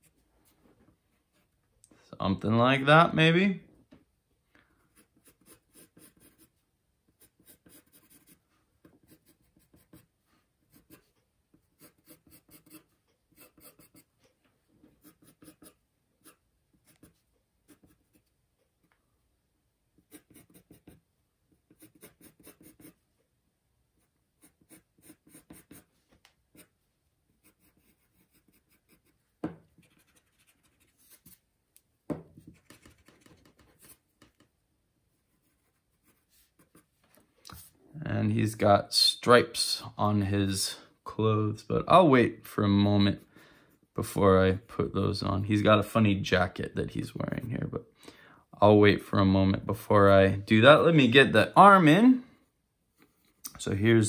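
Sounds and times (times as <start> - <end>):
pencil scratching on paper: 4.9 - 18.3, 20.0 - 23.0, 24.0 - 31.4, 32.4 - 34.5, 35.2 - 36.9
pencil taps: 29.4 - 29.8, 32.1 - 34.5.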